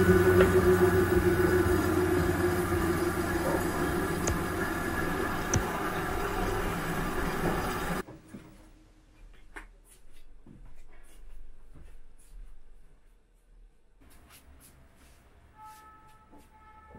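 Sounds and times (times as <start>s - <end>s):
faint footsteps: 8.0s - 16.9s.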